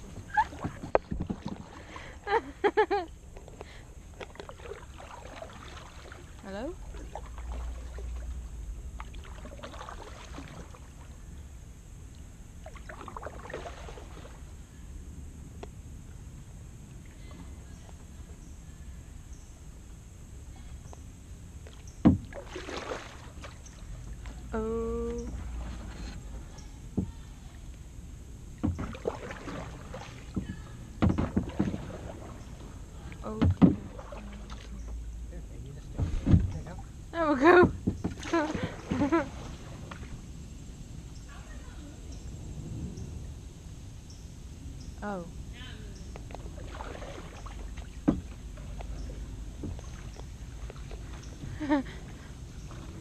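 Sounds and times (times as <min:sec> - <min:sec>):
paddle splashing water: 0:00.0 - 0:11.5, 0:12.6 - 0:14.7, 0:21.6 - 0:27.7, 0:28.5 - 0:41.8, 0:46.0 - 0:53.0
steady low rumble: 0:00.0 - 0:53.0
paddle knocking on plastic hull: 0:22.0 - 0:22.4, 0:28.6 - 0:32.3, 0:33.3 - 0:34.6, 0:37.4 - 0:39.2, 0:47.8 - 0:50.0.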